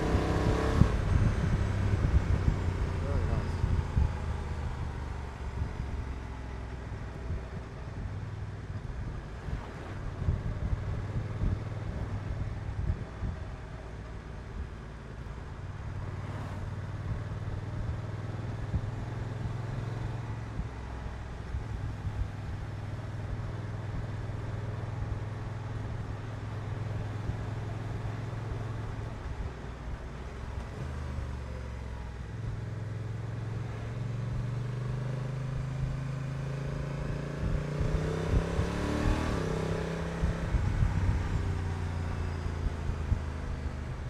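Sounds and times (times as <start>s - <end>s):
motorcycle engine cruising: 0.0s - 14.7s, 15.3s - 44.0s
road and air noise: 0.0s - 44.0s.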